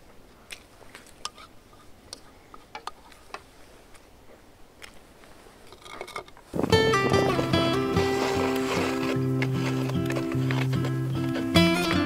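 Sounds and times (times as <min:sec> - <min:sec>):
person chewing food: 0:08.0 - 0:12.0.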